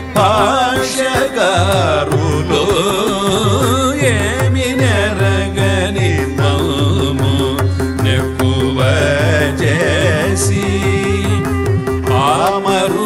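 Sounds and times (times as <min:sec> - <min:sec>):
mridangam drum beat: 0:00.0 - 0:13.0.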